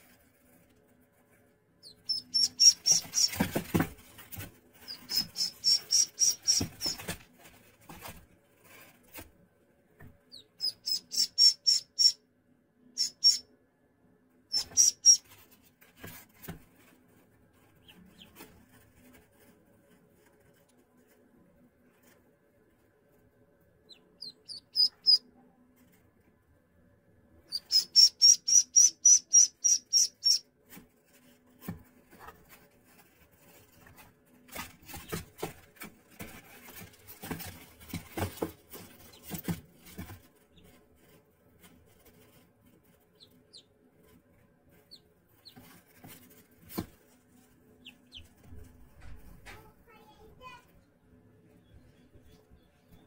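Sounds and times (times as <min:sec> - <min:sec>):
ducklings peeping: 0:01.8 - 0:03.8, 0:04.8 - 0:07.2, 0:10.3 - 0:12.2, 0:12.9 - 0:13.4, 0:14.5 - 0:15.4, 0:17.8 - 0:18.4, 0:23.9 - 0:25.3, 0:27.4 - 0:30.4, 0:43.1 - 0:43.8, 0:44.8 - 0:45.7, 0:47.8 - 0:48.6
scratching on cardboard: 0:02.1 - 0:09.3.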